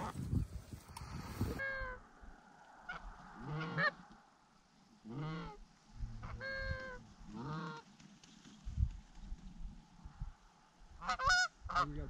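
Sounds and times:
goose honking: 2.9s - 4.1s, 5.1s - 5.6s, 6.2s - 7.9s, 11.0s - 11.9s.

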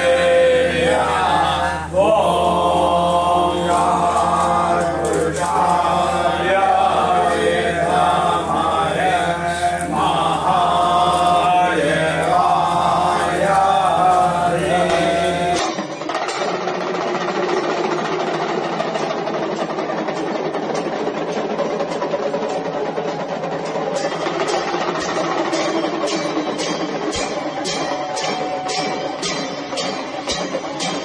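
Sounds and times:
devotional chanting: 0.0s - 16.0s.

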